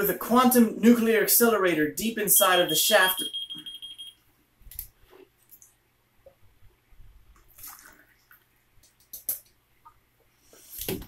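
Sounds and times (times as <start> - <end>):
liquid sloshing and trickling: 7.4 - 8.8.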